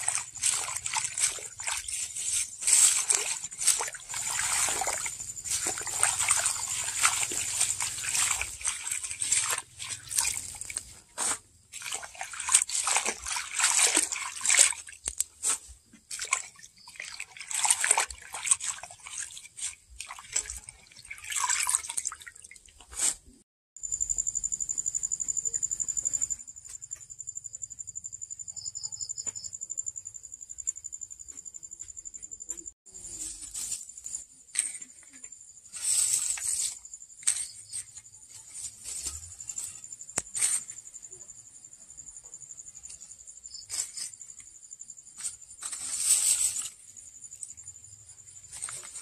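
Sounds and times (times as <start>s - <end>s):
hand swishing leaves in water: 0.0s - 23.4s, 32.9s - 34.8s, 35.7s - 40.7s, 45.2s - 47.5s, 48.4s - 49.0s
water splashing and sloshing: 0.0s - 23.4s, 32.6s - 41.3s, 45.0s - 49.0s.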